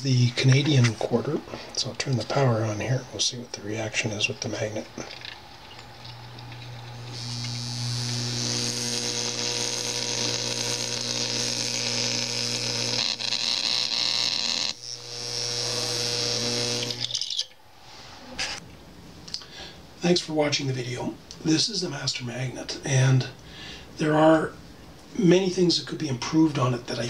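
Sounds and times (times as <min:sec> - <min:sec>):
low mains hum: 0:00.0 - 0:27.0
harsh rattling buzz: 0:05.1 - 0:17.3.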